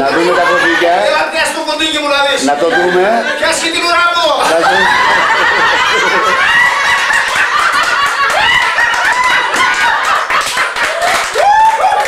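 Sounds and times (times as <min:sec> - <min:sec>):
people laughing and shrieking: 0:04.4 - 0:12.0
hand clapping: 0:06.6 - 0:12.0.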